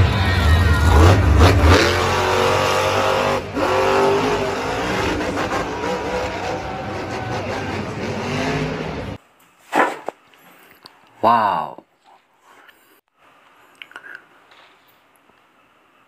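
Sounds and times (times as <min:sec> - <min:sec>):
monster truck engine revving: 0:00.0 - 0:09.2.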